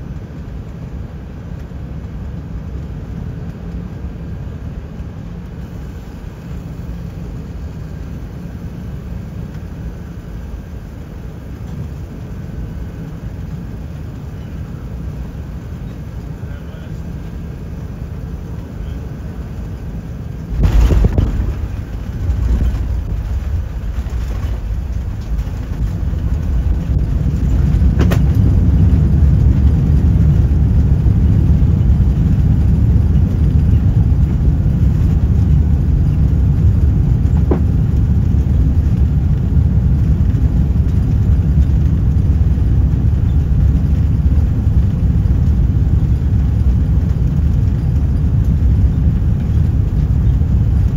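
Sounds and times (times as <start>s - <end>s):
reverse thrust engine rumble: 2.7s - 50.9s
landing roll rumble: 20.5s - 30.2s, 36.7s - 38.8s
heavy thump of wheels touching down: 20.6s - 25.9s, 27.8s - 28.4s, 37.3s - 37.8s.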